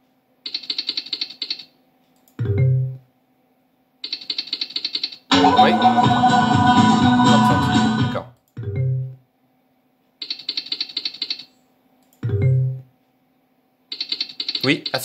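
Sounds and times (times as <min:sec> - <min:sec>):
slot machine jingle: 0:05.3 - 0:08.2
rapid electronic ticks: 0:13.9 - 0:15.0.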